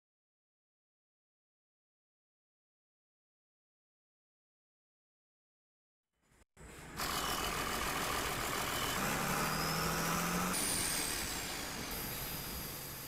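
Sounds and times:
diesel locomotive engine idling: 6.6s - 13.0s.

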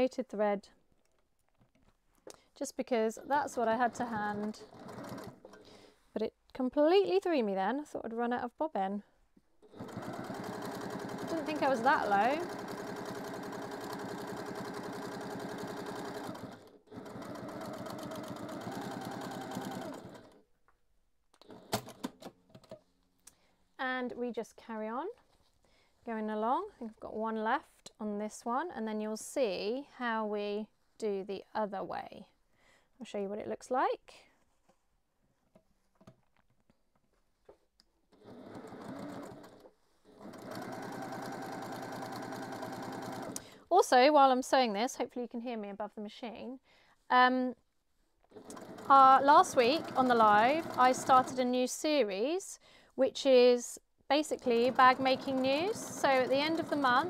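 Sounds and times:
sewing machine stitching: 3.4s - 5.7s, 9.6s - 20.4s, 21.4s - 22.3s, 38.1s - 43.5s, 48.3s - 51.5s, 54.2s - 57.0s.

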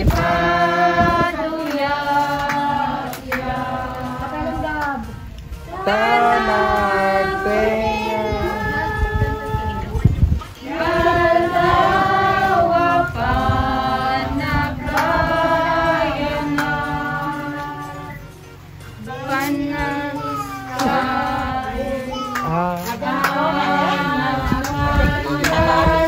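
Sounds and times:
several voices singing: 0.0s - 26.0s.

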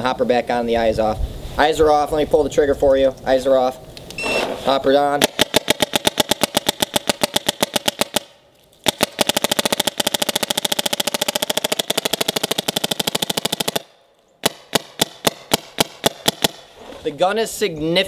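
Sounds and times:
paintball marker firing rapid shots: 5.2s - 16.7s.

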